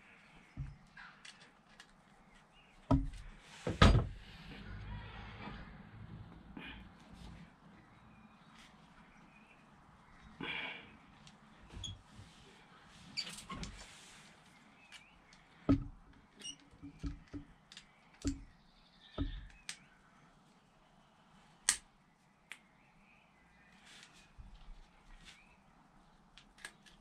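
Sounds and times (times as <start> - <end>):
hands working hose and clamp: 15.7 - 18.5.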